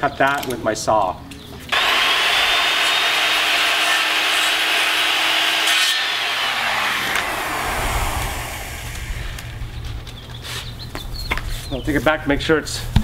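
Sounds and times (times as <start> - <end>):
circular saw cutting plastic: 1.7 - 9.8
saw blade spinning down: 1.7 - 9.9.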